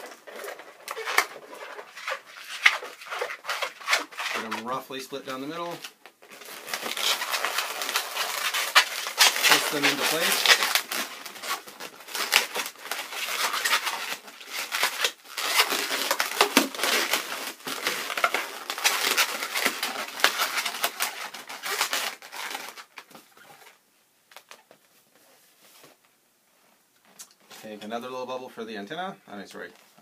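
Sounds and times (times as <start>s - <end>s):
balloons rubbing and crackling: 0.0s - 26.1s.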